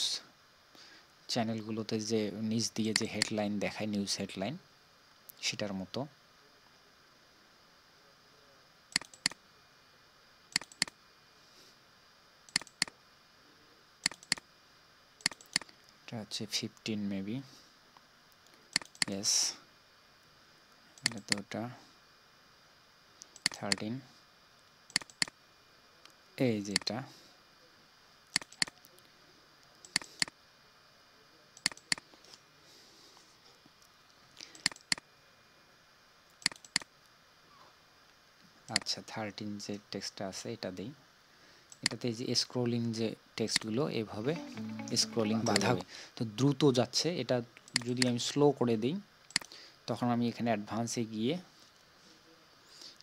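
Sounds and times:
faint steady hiss: 0.0s - 53.0s
computer mouse clicks: 2.9s - 3.4s, 8.9s - 9.4s, 10.5s - 11.0s, 12.5s - 13.0s, 14.0s - 14.4s, 15.2s - 15.7s, 18.4s - 19.2s, 21.0s - 21.4s, 23.2s - 23.8s, 24.9s - 25.4s, 28.3s - 28.8s, 29.8s - 30.4s, 31.6s - 32.0s, 34.5s - 35.0s, 36.3s - 36.9s, 38.7s - 38.9s, 41.7s - 42.0s, 47.6s - 48.1s, 49.3s - 49.6s.

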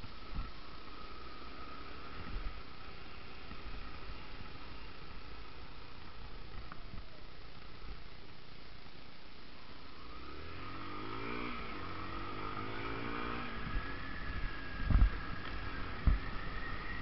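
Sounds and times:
motorcycle engine accelerating: 0.0s - 8.0s, 9.8s - 17.0s.

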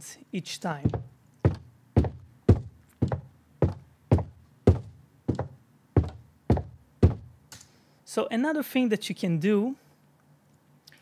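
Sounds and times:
sharp footstep sound effects: 0.8s - 7.3s.

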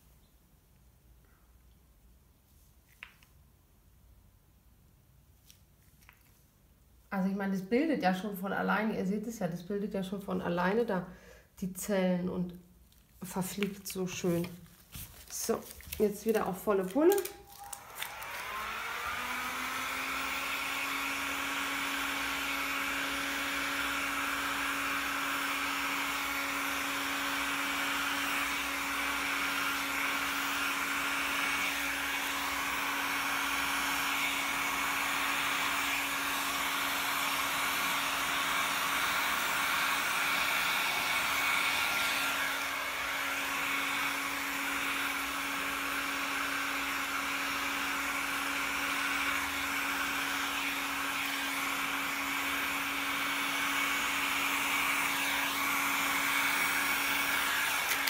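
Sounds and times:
hair dryer running: 13.2s - 58.0s.

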